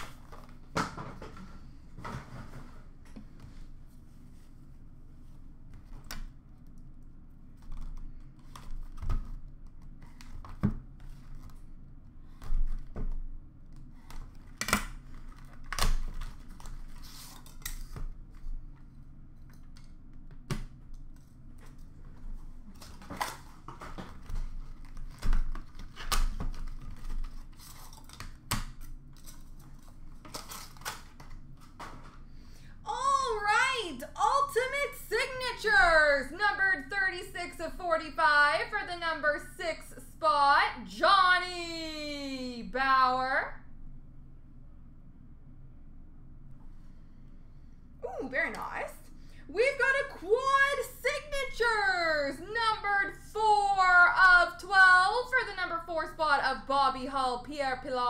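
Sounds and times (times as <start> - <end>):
faint low hum: 0.0 - 58.0
cardboard and wrappers rustling: 21.3 - 28.5.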